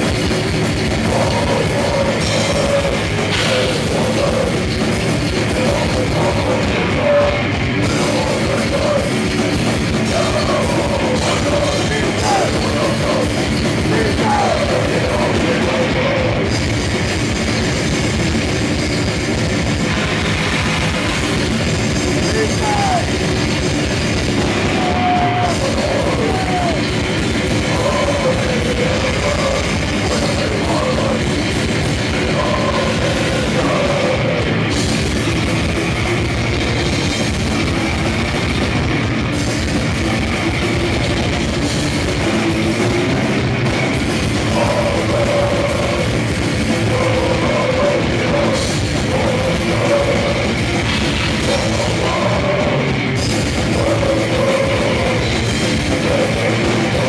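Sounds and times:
bass guitar: 0:00.0 - 0:57.0
distorted electric guitar: 0:00.0 - 0:57.0
drum kit: 0:00.0 - 0:57.0.

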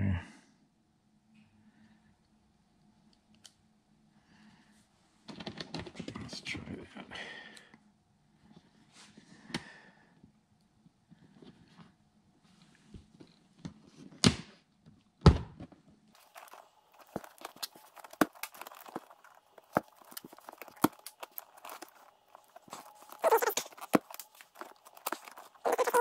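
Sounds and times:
small clicks and rustles of wire: 0:16.2 - 0:25.6.

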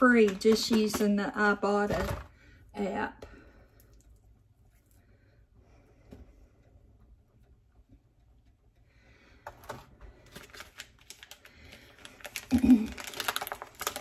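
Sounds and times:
plastic packaging crackling: 0:10.1 - 0:14.0.

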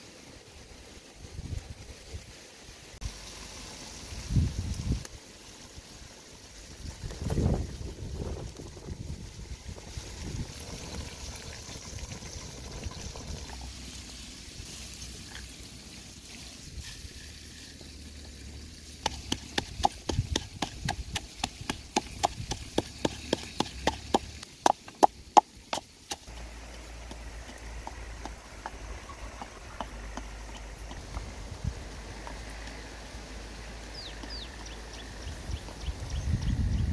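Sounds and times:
pestle pounding in wooden mortar: 0:19.0 - 0:31.0.

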